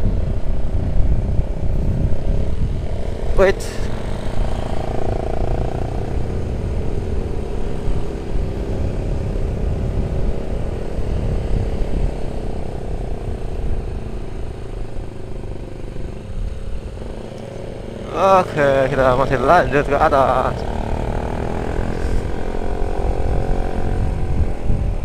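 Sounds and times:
wind rumbling on microphone: 0.0 - 18.0, 18.8 - 25.0
motorcycle engine running: 0.0 - 25.0.

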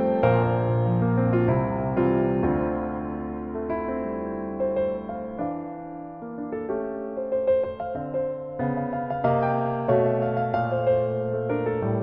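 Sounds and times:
soft piano chords: 0.0 - 12.0.

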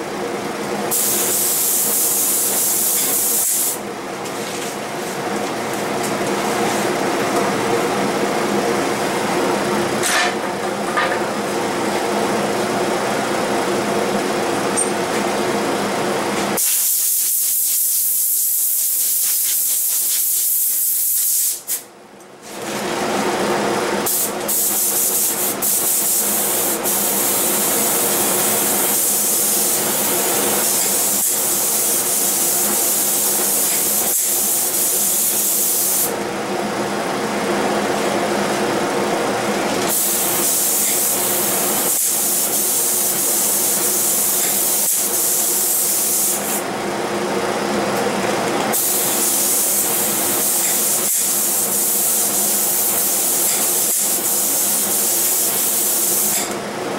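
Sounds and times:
air compressor motor hum: 0.0 - 56.9
spray gun hissing: 0.9 - 3.8, 16.6 - 21.8, 24.1 - 36.1, 39.9 - 46.6, 48.7 - 56.4.

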